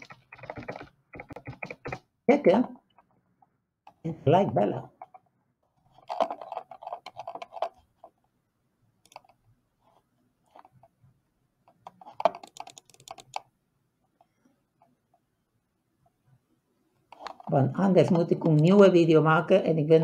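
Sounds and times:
computer keyboard key clicks: 0.0 - 2.0, 12.2 - 13.4.

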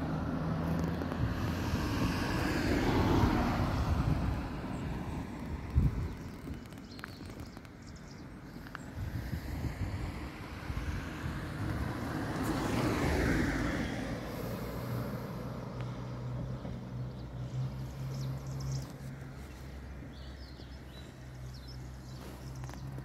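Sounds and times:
vehicle engine humming: 10.7 - 23.0.

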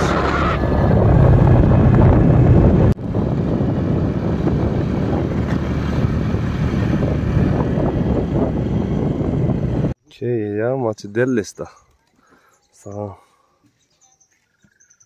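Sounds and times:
vehicle engine running: 0.0 - 10.0
wind and road noise: 0.0 - 10.0.

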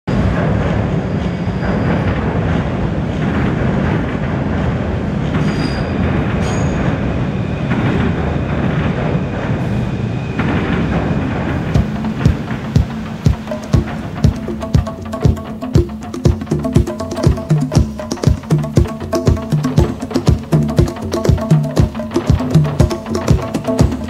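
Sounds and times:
train rumbling over steel bridge: 0.1 - 24.0
high wheel squeal: 5.4 - 7.7.

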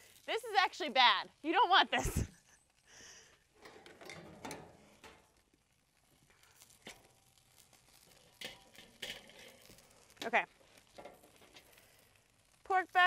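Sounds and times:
metal tongs clicking on grill: 7.9 - 11.8.

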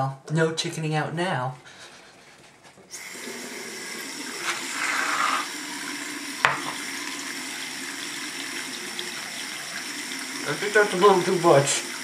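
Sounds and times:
tap water running into sink: 2.9 - 12.0
aerosol foam hiss: 4.3 - 5.5.

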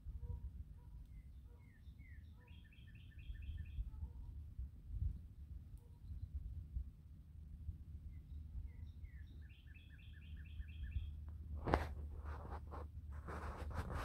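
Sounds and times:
songbird singing: 0.0 - 4.3, 5.8 - 6.5, 8.0 - 11.5
loud rustling crunching strokes: 11.6 - 14.0.

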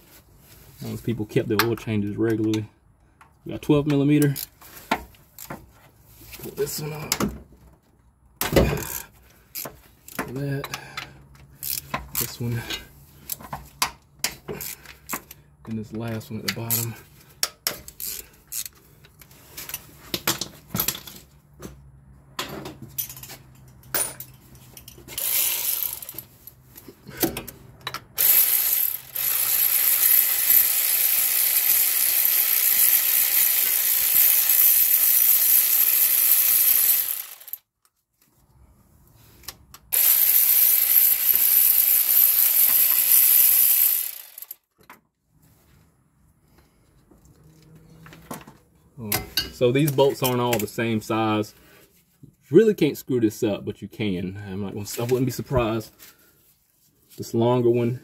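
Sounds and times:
ratchet wrench ratcheting: 4.2 - 4.6, 8.8 - 10.2, 11.5 - 12.3, 14.2 - 15.4, 16.5 - 18.8, 25.1 - 26.5, 28.2 - 37.6, 39.9 - 44.6.

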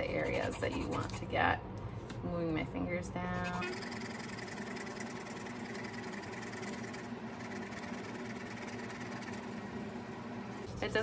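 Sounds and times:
pencil scratching on paper: 0.0 - 1.3, 3.3 - 10.6
faint steady hum: 0.0 - 11.0.

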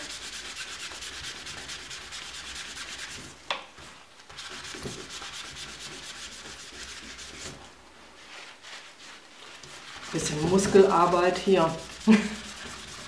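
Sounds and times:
paper towel rubbing on waxed card: 4.3 - 13.0.

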